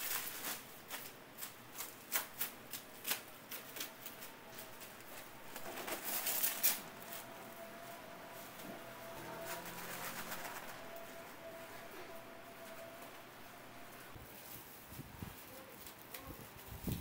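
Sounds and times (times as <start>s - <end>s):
crisp clicks and crackles: 0.0s - 7.3s, 14.2s - 17.0s.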